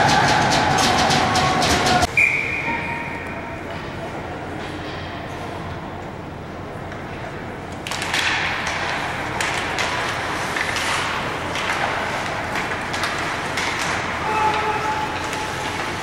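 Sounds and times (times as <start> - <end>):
arena noise: 0.0 - 16.0
sticks and puck knocking: 7.8 - 16.0
skates scraping ice: 7.9 - 16.0.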